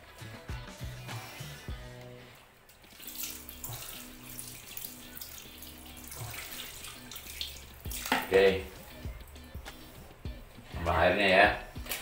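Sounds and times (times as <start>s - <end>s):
water splashing and pouring: 2.8s - 8.5s.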